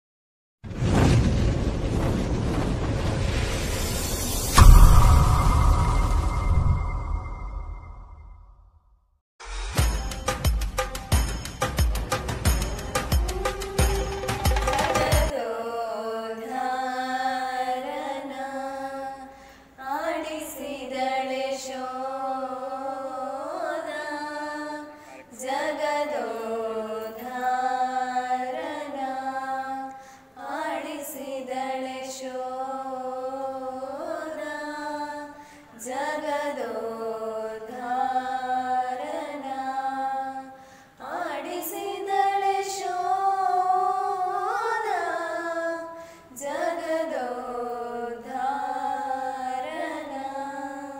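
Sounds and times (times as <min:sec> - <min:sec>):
women singing in a group: 0:14.6 - 0:50.9.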